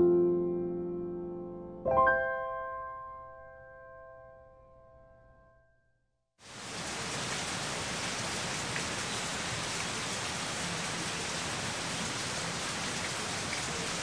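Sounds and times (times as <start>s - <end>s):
rain falling on a tent: 6.4s - 14.0s.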